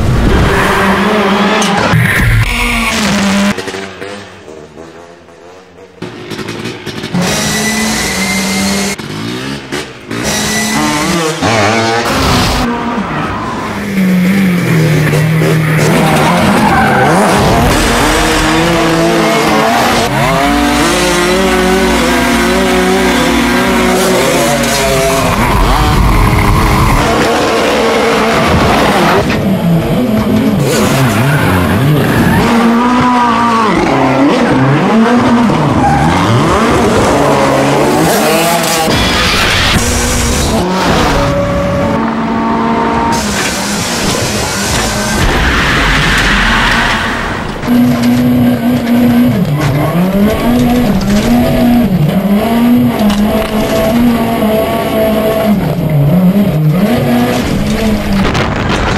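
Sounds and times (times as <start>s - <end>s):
car engine revving hard: 14.2s - 58.9s.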